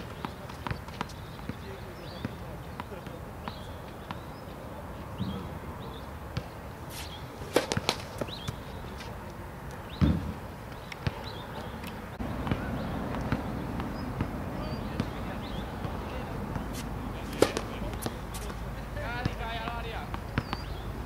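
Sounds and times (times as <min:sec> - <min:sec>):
tennis ball bouncing: 0:06.4 - 0:09.1, 0:09.9 - 0:20.8.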